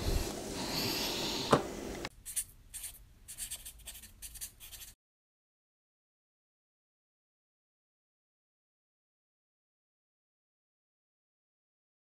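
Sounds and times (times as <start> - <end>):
pen scratching on paper: 2.2 - 5.0.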